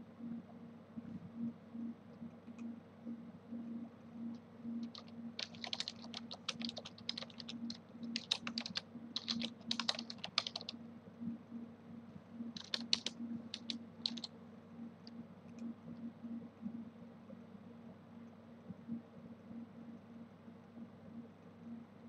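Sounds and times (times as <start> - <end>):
faint low hum: 0.0 - 22.0
computer keyboard typing: 4.8 - 10.8, 12.5 - 14.3.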